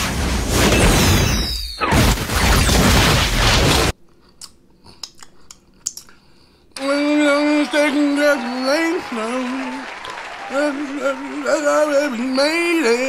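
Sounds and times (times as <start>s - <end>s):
wet lip smacks: 4.3s - 6.2s
man humming satisfied: 6.8s - 9.8s, 10.4s - 12.4s.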